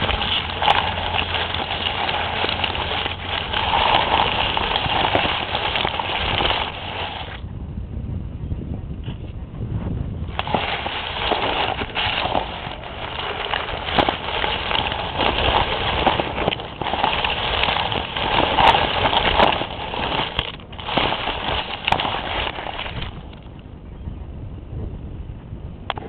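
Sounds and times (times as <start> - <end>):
grass rustling against microphone: 0.0 - 7.4, 10.2 - 23.7.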